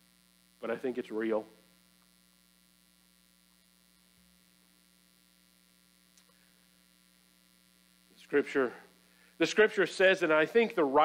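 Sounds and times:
faint electrical mains hum: 0:00.0 - 0:11.0.

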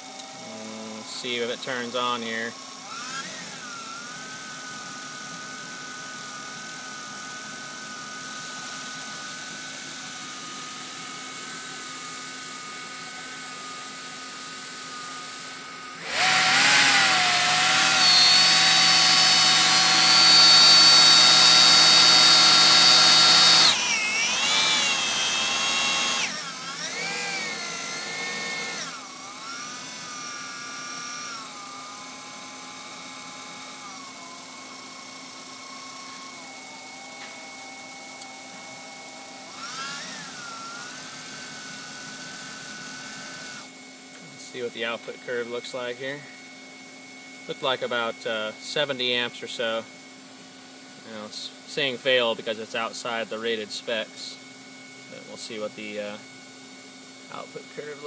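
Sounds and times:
alternator machine whine: 0:00.0 - 0:46.4.

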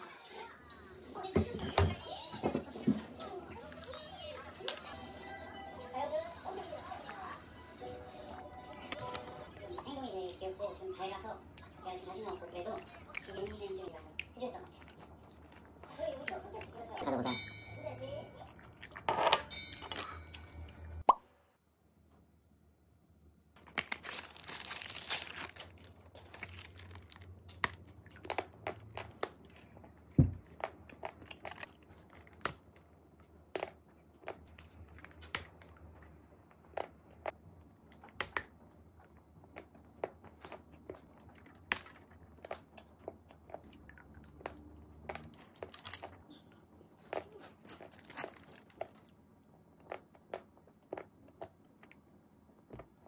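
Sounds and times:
crinkling tearing rustle: 0:23.6 - 0:27.8, 0:47.5 - 0:49.1
crunchy bites and chewing: 0:23.6 - 0:29.7, 0:39.1 - 0:46.2, 0:47.1 - 0:49.2.

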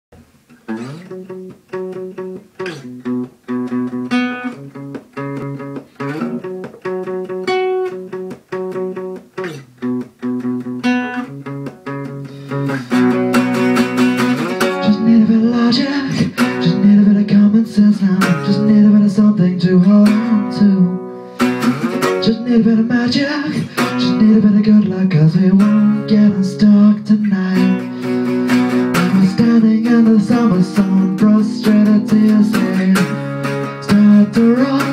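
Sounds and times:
acoustic guitar playing: 0:00.1 - 0:34.9.

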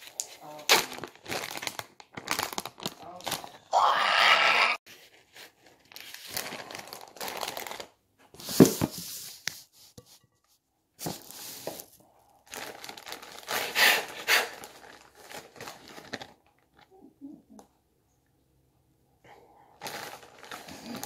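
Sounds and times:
food packaging crinkling and tearing: 0:00.0 - 0:04.1, 0:04.9 - 0:09.7, 0:11.0 - 0:16.9, 0:19.8 - 0:21.0.

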